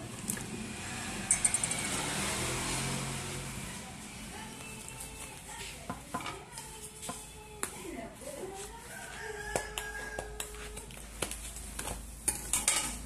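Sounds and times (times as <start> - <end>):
rooster crowing: 8.8 - 10.8.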